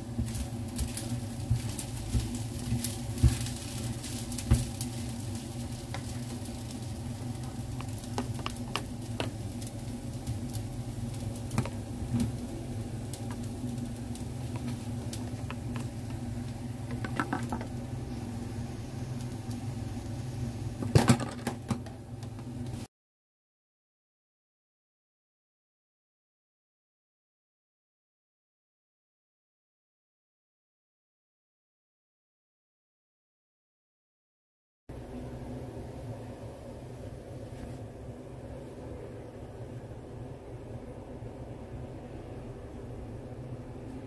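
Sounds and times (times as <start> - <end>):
spatula stirring rice in pan: 0.0 - 18.3
steady low hum: 0.0 - 21.0, 34.9 - 44.0.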